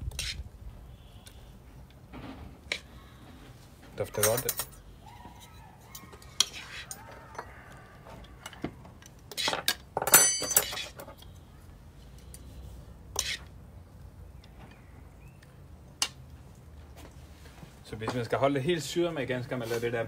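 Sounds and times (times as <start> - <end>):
serving utensils clinking on plates: 4.0 - 4.8, 9.3 - 11.2.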